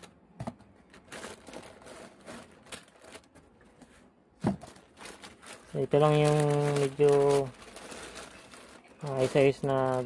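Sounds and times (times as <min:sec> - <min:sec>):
plastic bag crinkling: 0:00.8 - 0:03.6, 0:04.5 - 0:10.0.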